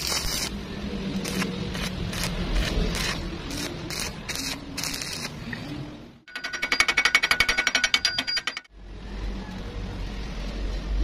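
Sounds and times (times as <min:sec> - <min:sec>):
welding arc crackling: 0:00.0 - 0:05.4.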